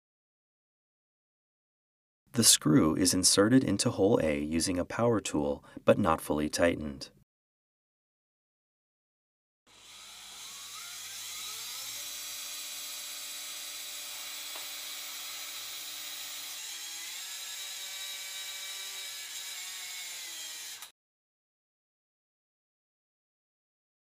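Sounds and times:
power tool motor whine: 9.7s - 20.9s.

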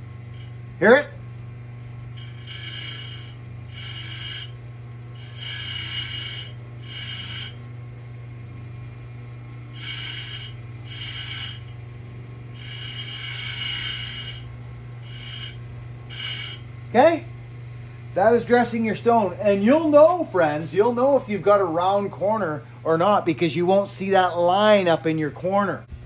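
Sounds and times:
grinder motor humming: 0.0s - 1.1s, 2.0s - 17.3s
gritty hissing grinding: 2.2s - 4.6s, 5.2s - 7.6s, 9.8s - 11.8s, 12.6s - 16.6s.

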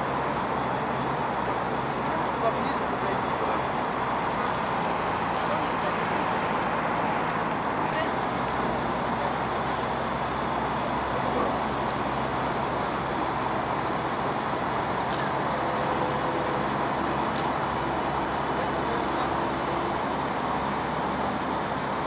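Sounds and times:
helicopter engine idling: 5.4s - 22.0s.

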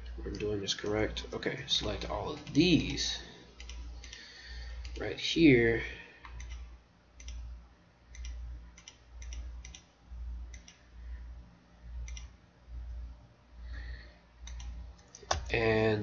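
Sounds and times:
computer mouse clicking: 3.6s - 5.0s, 6.2s - 7.5s, 8.1s - 9.9s, 10.5s - 10.9s, 12.0s - 12.4s, 14.4s - 15.5s.

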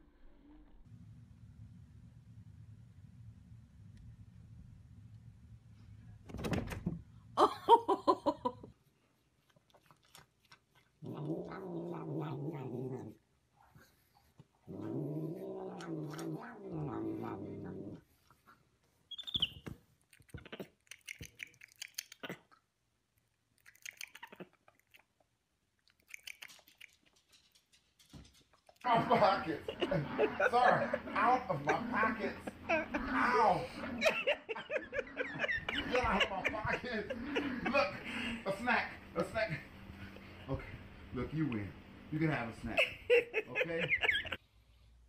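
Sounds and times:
cat yowling and growling: 14.7s - 18.0s.

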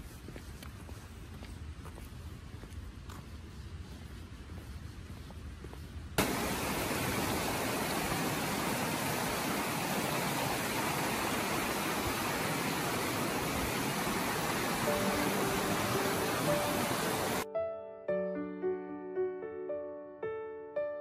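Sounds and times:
stream running over rocks: 6.2s - 17.4s.

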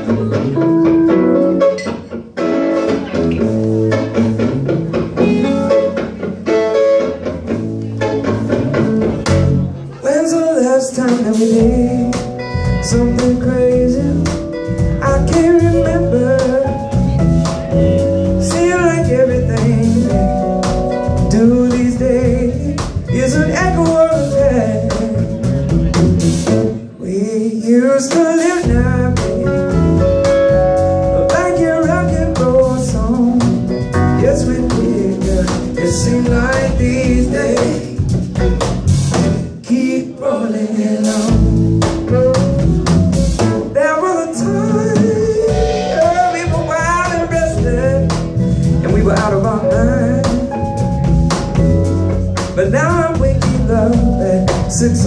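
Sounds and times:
electric guitar: 0.0s - 27.2s, 28.1s - 39.7s
drums: 0.0s - 55.0s
keyboard: 0.0s - 55.0s
male singing: 10.0s - 17.2s, 18.4s - 20.4s, 21.2s - 25.5s, 27.0s - 29.9s, 31.2s - 38.1s, 39.6s - 42.6s, 43.8s - 48.2s, 48.8s - 50.7s, 52.6s - 55.0s.

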